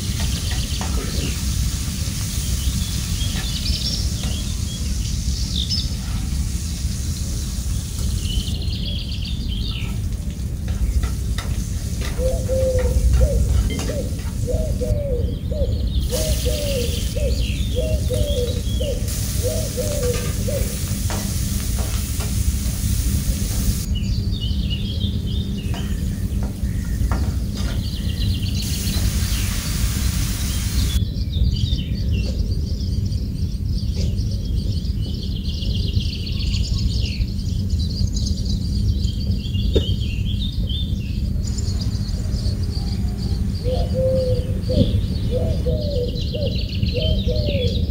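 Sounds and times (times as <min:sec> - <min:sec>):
food sizzling in oil: 0:00.0 - 0:04.2, 0:19.1 - 0:23.9, 0:28.6 - 0:31.0
birds chirping: 0:00.0 - 0:47.9
steady low rumble: 0:20.3 - 0:47.1.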